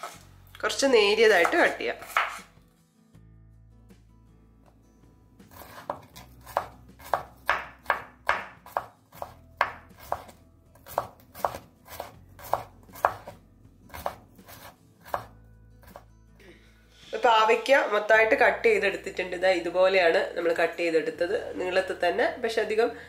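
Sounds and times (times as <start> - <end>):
knife slicing on cutting board: 0.0 - 0.2, 1.4 - 2.5, 5.5 - 16.0.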